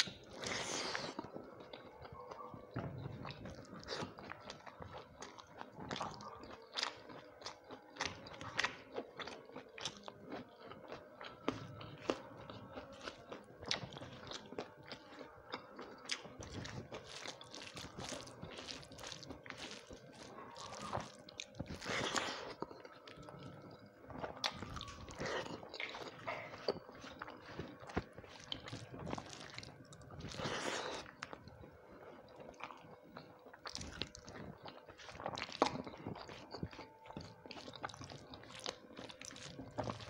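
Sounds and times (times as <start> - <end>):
wet chewing: 0.0 - 40.0.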